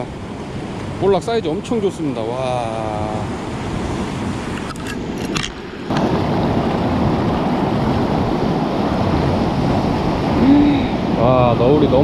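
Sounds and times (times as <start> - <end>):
wind on microphone: 0.0 - 12.0
surf breaking over rocks: 5.4 - 12.0.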